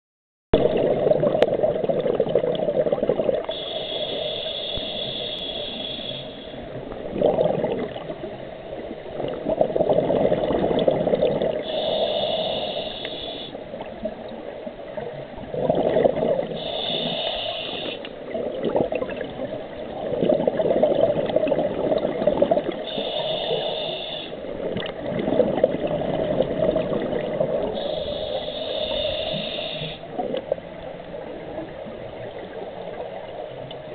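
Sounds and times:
gurgling exhaled bubbles: 0.6s - 4.4s, 6.7s - 8.4s, 9.0s - 13.3s, 15.1s - 30.8s
diver hissing inhalations: 3.5s - 6.6s, 11.7s - 13.6s, 16.6s - 18.1s, 22.9s - 24.4s, 27.8s - 30.1s.

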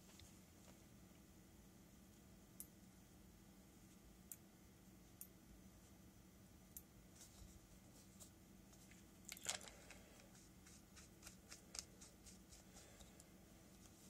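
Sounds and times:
faint steady hum: 0.0s - 14.0s
small clicks and scrapes: 7.2s - 14.0s.

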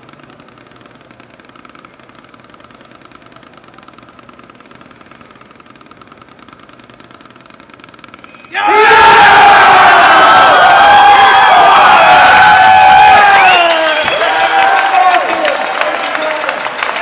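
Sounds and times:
crowd cheering: 8.5s - 17.0s.

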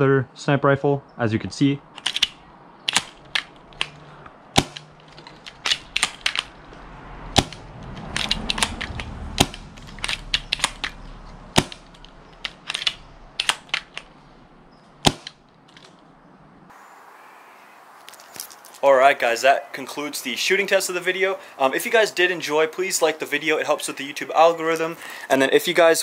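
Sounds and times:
rifle bolt clacking: 2.0s - 4.0s, 4.6s - 6.5s, 7.4s - 11.0s, 11.6s - 14.1s
rifle dry-fire snaps: 8.2s - 11.0s.

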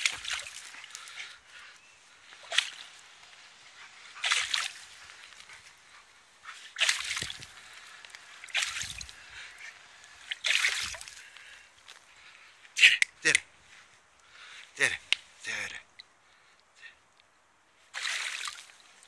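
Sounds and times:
water spray hissing: 2.2s - 5.8s.

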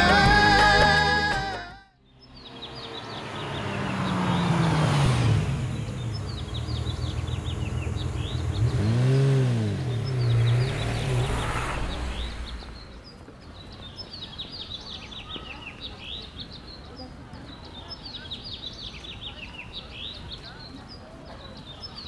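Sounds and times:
car engine driving up: 0.0s - 13.2s
bird chirps: 2.0s - 5.0s, 5.7s - 22.0s.

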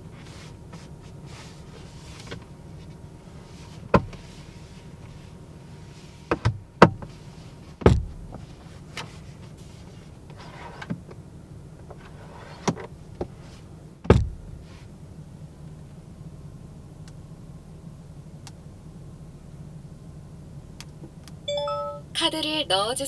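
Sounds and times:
steady low hum: 0.0s - 23.0s
soft brushing: 0.1s - 6.3s, 7.0s - 10.9s, 13.3s - 13.7s, 14.6s - 15.0s.

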